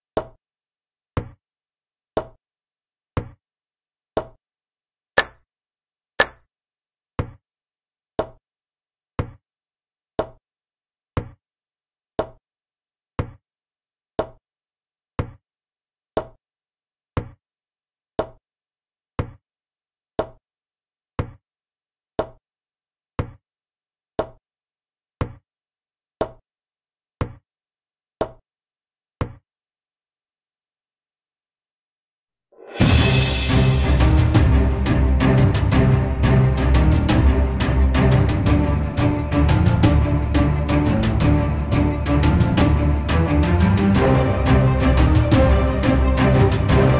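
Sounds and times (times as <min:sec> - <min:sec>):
wooden chess piece click: 0:06.2 - 0:06.4.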